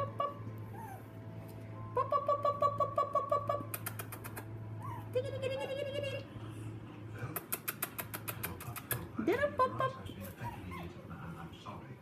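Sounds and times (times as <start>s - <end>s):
puppies yapping: 0.1s - 1.1s, 3.3s - 5.2s, 10.3s - 11.0s
puppy whimpers: 0.1s - 1.1s, 3.3s - 5.3s, 10.2s - 11.0s
sharp clicks: 3.7s - 4.5s, 7.4s - 9.0s.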